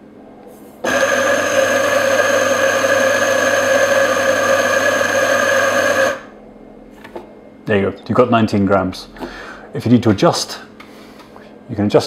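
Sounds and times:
coffee grinder motor grinding beans: 0.8s - 6.3s.

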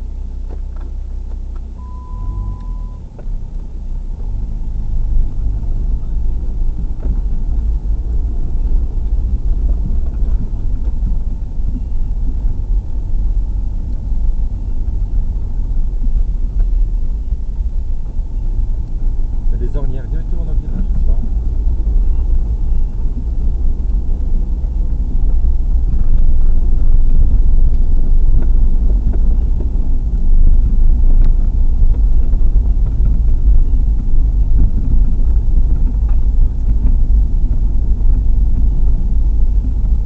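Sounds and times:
short steady beep: 1.8s - 3.0s.

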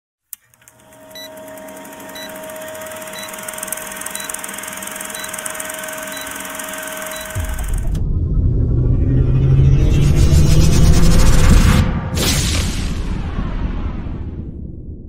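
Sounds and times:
film projector whirring and clatter: 0.4s - 8.0s
short high beep: 1.1s - 7.8s.

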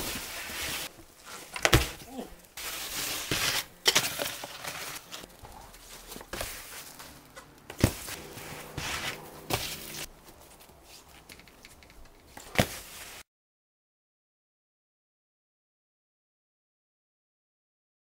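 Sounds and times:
board hissing over snow: 0.0s - 0.9s, 12.7s - 13.2s.

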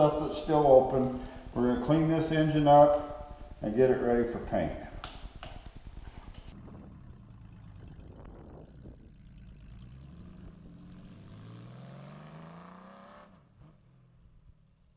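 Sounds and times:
engine running and revving: 0.0s - 4.2s, 5.0s - 14.6s.

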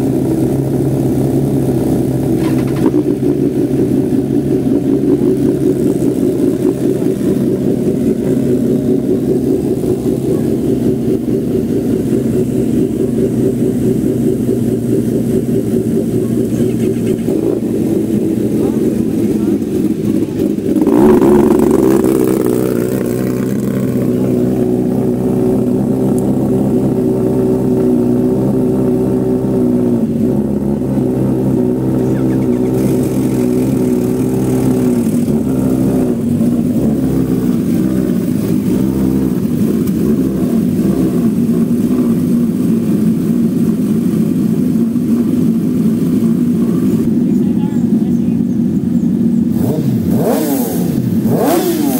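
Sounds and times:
motorcycle engines idling: 0.0s - 51.9s
engine throttle blip: 2.2s - 3.7s.

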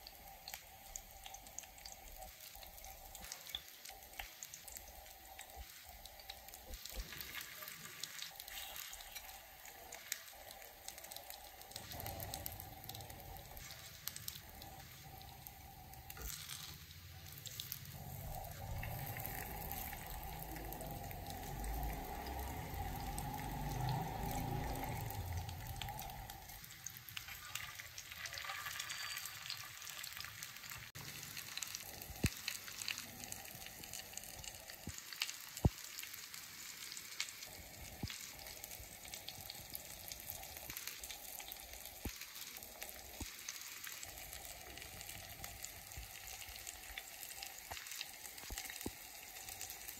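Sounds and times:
fish frying in oil: 0.0s - 49.9s
low hum: 17.2s - 26.6s.

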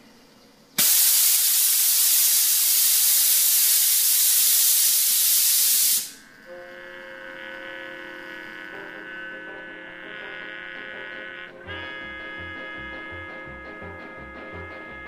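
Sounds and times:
steam hissing: 0.0s - 6.4s.

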